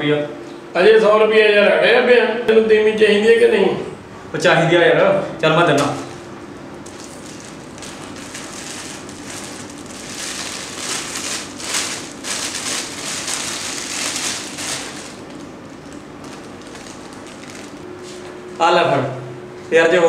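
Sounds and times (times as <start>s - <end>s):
plastic bag crinkling: 6.8s - 17.8s.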